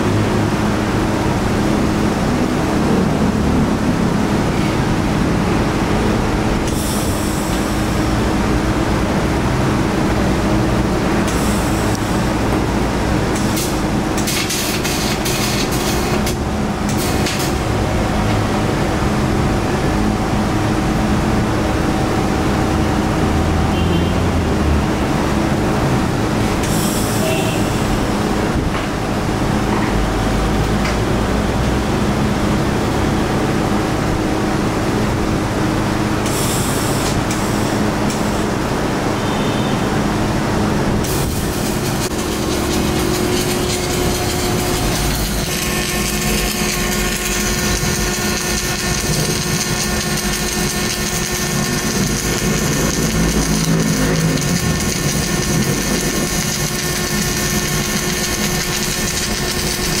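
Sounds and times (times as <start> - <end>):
low workshop hum: 0.0 - 60.0
welding arc crackling hiss: 11.2 - 12.6, 13.2 - 17.7, 26.5 - 28.0, 41.0 - 60.0.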